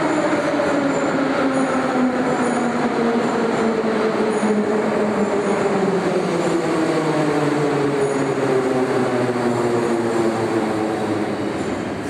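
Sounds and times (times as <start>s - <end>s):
metro train slowing down: 0.0s - 12.0s.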